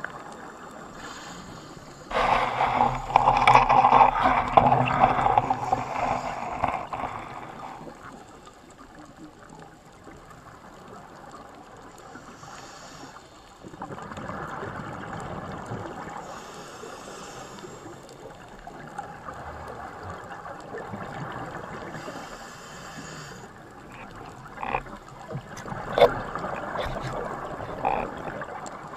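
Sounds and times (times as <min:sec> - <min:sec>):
muffled underwater rushing: 0:00.0 - 0:08.4, 0:23.1 - 0:28.9.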